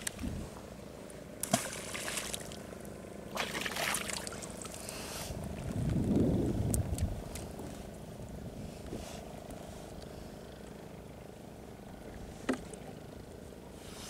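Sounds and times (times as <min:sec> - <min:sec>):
boat hum: 0:00.0 - 0:14.0
water splashing and trickling: 0:01.4 - 0:04.9
low rumble: 0:05.3 - 0:08.8.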